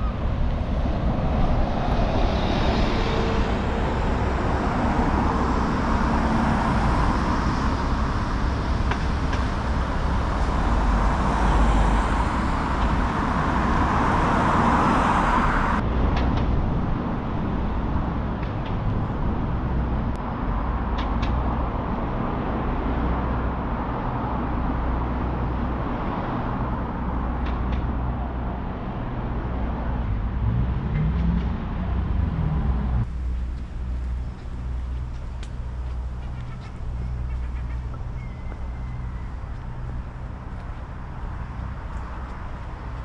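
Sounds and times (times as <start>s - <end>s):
vehicle engines running: 0.0s - 43.0s
engine speeding up: 30.1s - 33.2s.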